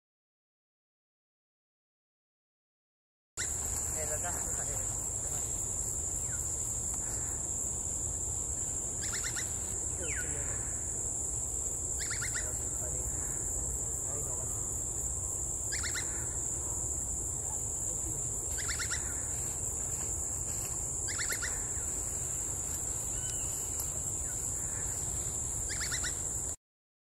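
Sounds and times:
woodpecker calling: 3.4 - 4.0, 8.6 - 11.0, 11.9 - 13.6, 14.3 - 16.8, 18.5 - 19.6, 21.1 - 26.4
high-pitched insect drone: 3.4 - 26.6.

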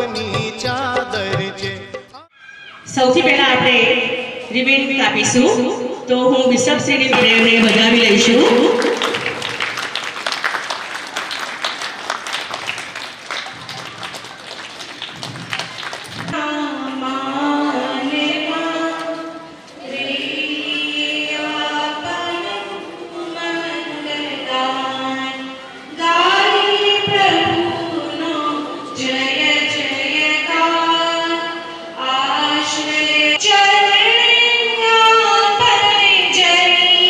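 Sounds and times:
crowd clapping: 7.2 - 16.4.

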